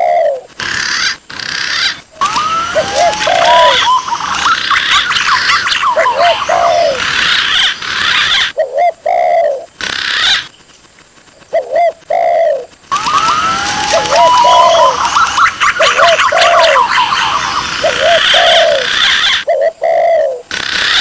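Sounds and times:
doves cooing: 0:00.0 - 0:10.5, 0:11.3 - 0:21.0
gliding pigeon whistles: 0:00.8 - 0:09.5, 0:11.5 - 0:21.0.

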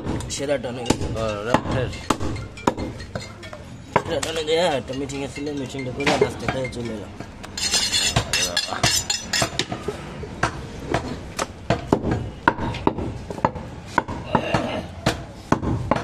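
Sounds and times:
metallic clatter of basin: 0:04.8 - 0:09.7
cleaver chopping on wooden block: 0:10.4 - 0:16.0.

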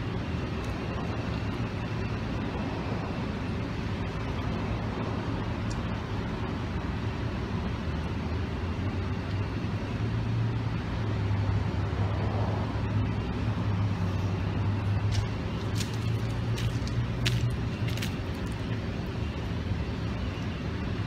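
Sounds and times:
road traffic engine hum: 0:00.0 - 0:21.0.

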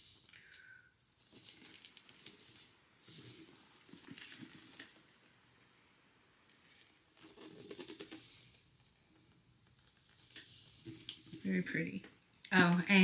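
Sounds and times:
book being handled rustling: 0:01.2 - 0:05.2, 0:06.5 - 0:09.0.

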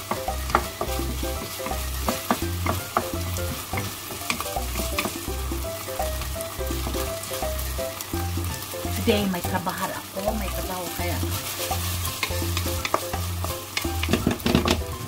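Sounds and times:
spatula scraping a frying pan: 0:00.0 - 0:09.0, 0:10.6 - 0:15.0
food sizzling: 0:00.0 - 0:15.0.

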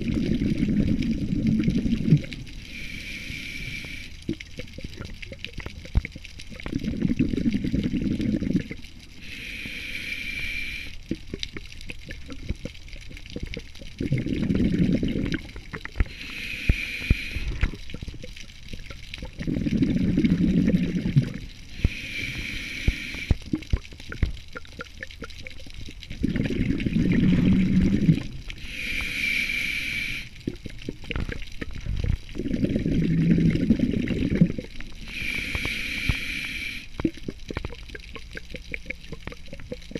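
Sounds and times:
exhalation bubbling rumble: 0:00.0 - 0:02.8, 0:03.8 - 0:39.9
regulator inhalation hiss: 0:02.6 - 0:04.2, 0:09.2 - 0:11.0, 0:16.1 - 0:17.7, 0:21.7 - 0:23.5, 0:28.6 - 0:30.4, 0:35.0 - 0:37.0.

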